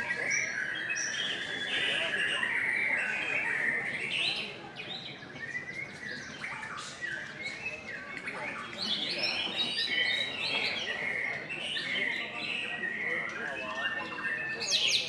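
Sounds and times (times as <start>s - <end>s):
other birds singing: 0.0s - 15.0s.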